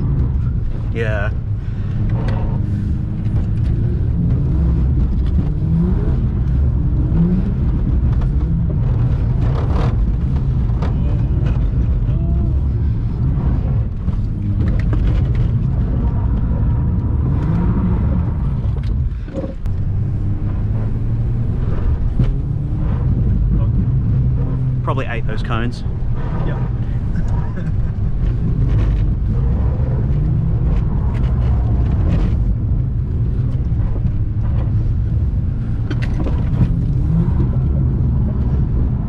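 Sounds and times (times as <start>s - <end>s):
car engine revving: 0.0s - 39.0s.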